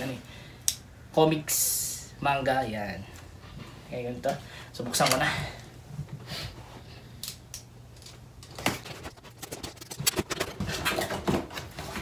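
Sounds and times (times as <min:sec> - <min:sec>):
cardboard rustling and scraping: 0:08.6 - 0:12.0.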